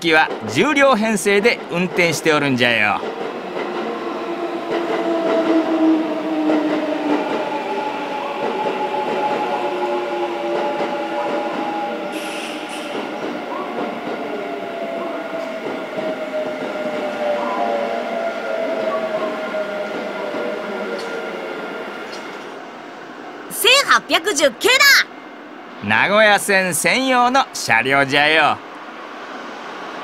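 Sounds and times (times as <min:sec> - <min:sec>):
train whining tones: 0:00.0 - 0:25.8
electric train rumbling past: 0:00.0 - 0:30.0
short hiss: 0:12.2 - 0:13.0.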